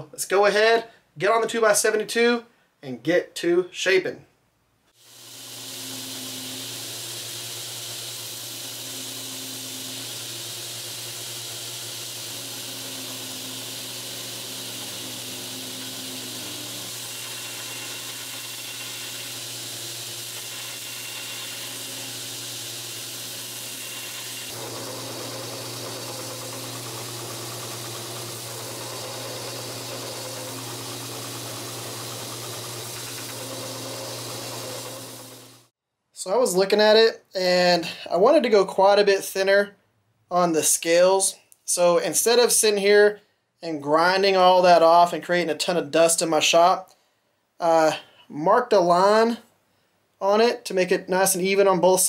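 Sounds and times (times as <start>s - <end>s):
abrasive belt grinding hiss: 5.0s - 35.7s
belt grinder motor hum: 5.0s - 35.7s.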